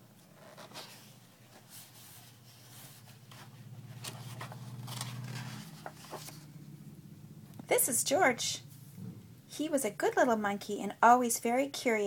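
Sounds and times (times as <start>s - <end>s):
faint low hum: 0.0s - 12.0s
book pages turning: 0.3s - 6.5s.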